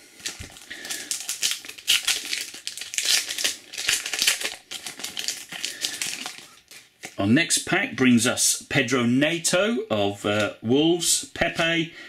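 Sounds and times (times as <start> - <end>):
card pack wrapper crinkling: 0.1 - 7.2.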